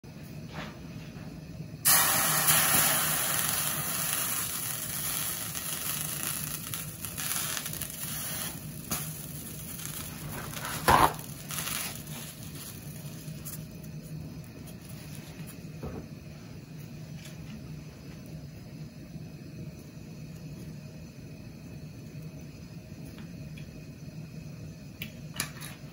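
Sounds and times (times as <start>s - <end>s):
water sizzling in hot pan: 1.8s - 15.6s.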